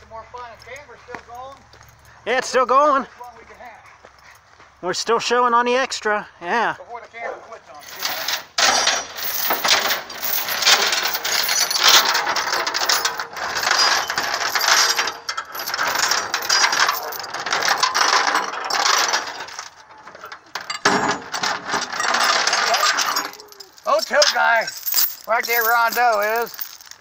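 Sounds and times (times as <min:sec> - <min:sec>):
metal chains clinking and rattling: 0:07.8 - 0:27.0.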